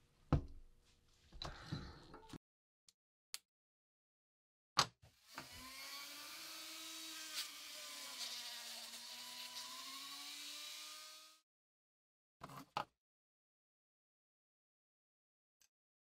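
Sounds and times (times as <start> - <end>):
rotary tool polishing metal: 5.2 - 11.4.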